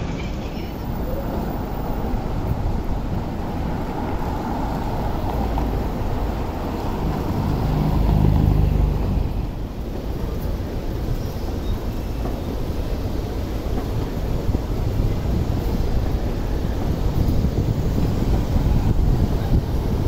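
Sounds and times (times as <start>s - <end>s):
road traffic noise: 0.0s - 20.0s
vehicle passing: 2.9s - 9.6s.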